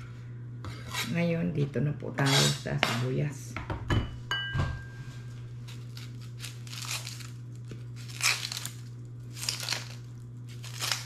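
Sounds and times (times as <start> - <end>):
low hum: 0.0 - 11.0
onion skin crinkling and ripping: 5.5 - 11.0.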